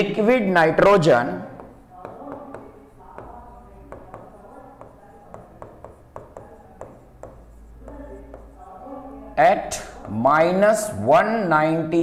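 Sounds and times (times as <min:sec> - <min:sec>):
pen tapping and scratching on screen: 0:01.4 - 0:08.8, 0:09.7 - 0:10.5.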